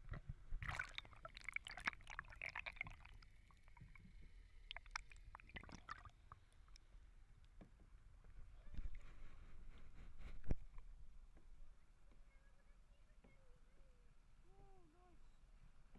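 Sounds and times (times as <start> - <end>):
underwater bubbling and fizzing: 0.1 - 7.0.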